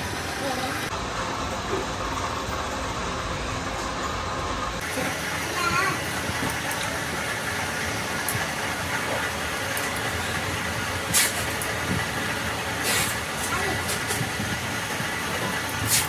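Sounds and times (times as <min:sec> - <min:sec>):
workshop machinery noise: 0:00.0 - 0:16.0.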